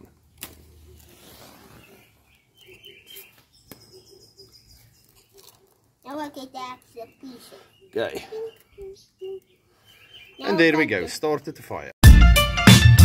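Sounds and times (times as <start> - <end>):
faint bird chirps: 0.9 - 10.8.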